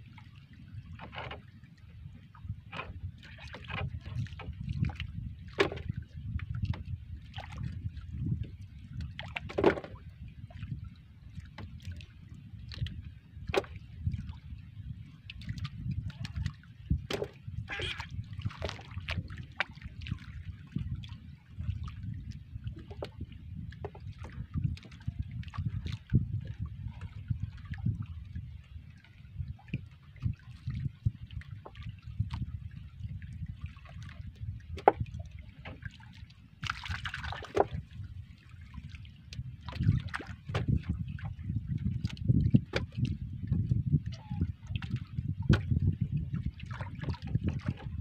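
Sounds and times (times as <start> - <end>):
water lapping against boat hull: 0.0 - 48.0
wind rumble on microphone: 0.0 - 48.0
water splashing and dripping: 15.3 - 23.2, 33.4 - 45.8.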